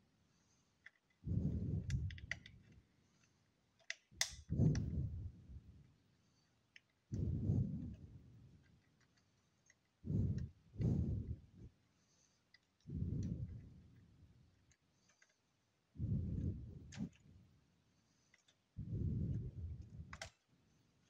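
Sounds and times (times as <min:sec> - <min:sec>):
sharp plastic clicks: 0:01.8 - 0:05.0, 0:20.1 - 0:20.4
dull low thuds: 0:07.2 - 0:08.0.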